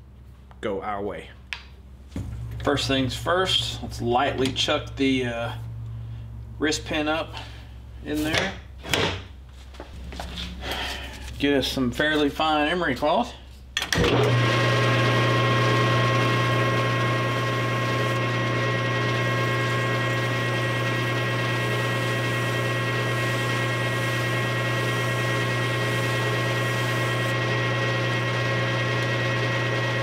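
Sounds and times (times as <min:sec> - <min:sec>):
metal lathe humming and whining: 0:14.0 - 0:30.0.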